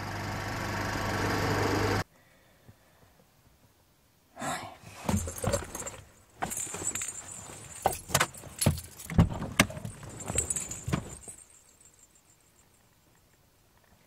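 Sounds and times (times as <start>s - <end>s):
keys jangling: 5.0s - 13.2s.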